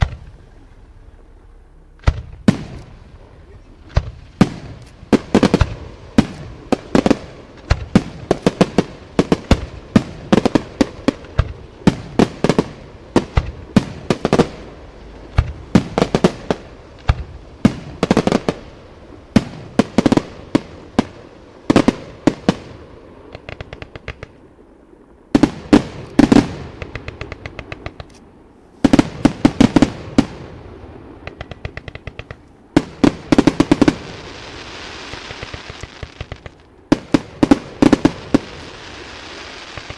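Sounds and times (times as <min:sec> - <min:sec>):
firework crackling: 0:00.0 - 0:39.9
firework shells bursting: 0:01.9 - 0:03.1, 0:23.3 - 0:24.4, 0:25.4 - 0:30.5, 0:31.2 - 0:39.9.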